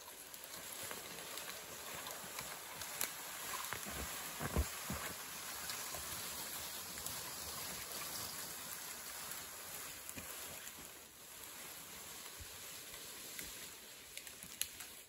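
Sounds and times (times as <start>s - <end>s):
tree trunk dragged scraping: 3.4s - 5.6s.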